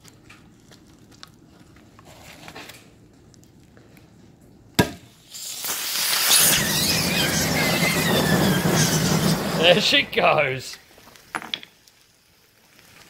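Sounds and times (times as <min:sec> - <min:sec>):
loud hiss of venting gas: 0:05.1 - 0:10.9
faint crackling: 0:05.4 - 0:13.0.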